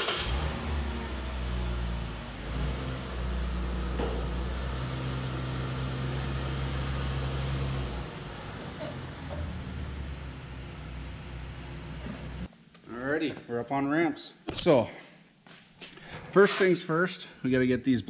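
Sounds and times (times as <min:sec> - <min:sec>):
pickup truck engine running: 0:00.0 - 0:12.5.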